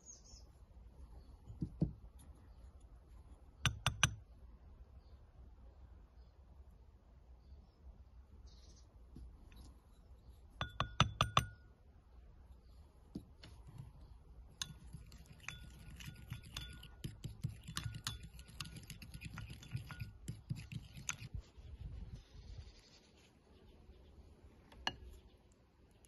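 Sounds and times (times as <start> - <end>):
spoon clinking in glass bowl: 10.6 - 11.5, 14.5 - 21.3.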